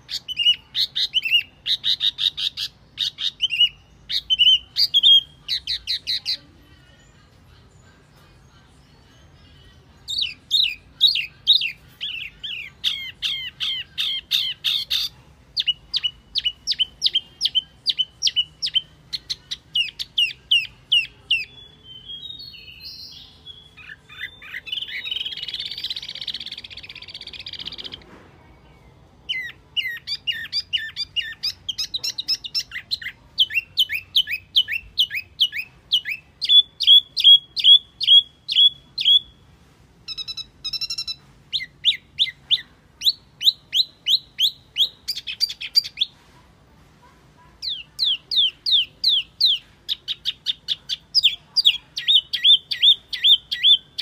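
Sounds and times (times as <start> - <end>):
scratchy bird chattering: 0.0 - 6.4, 10.1 - 21.5
songbird whistled song: 0.0 - 6.4, 7.0 - 46.2, 47.6 - 54.0.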